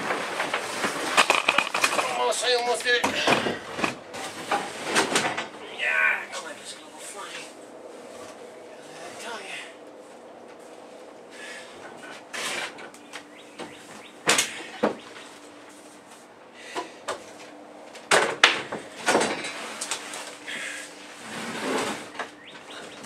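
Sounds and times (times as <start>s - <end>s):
wooden boards knocking and scraping: 0.0s - 2.2s.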